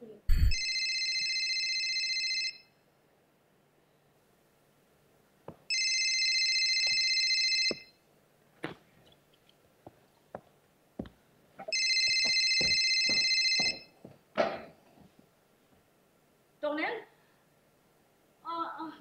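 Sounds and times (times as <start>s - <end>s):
telephone ringing: 0.5s - 2.7s, 5.7s - 8.0s, 11.7s - 13.9s
thump: 14.4s - 14.8s.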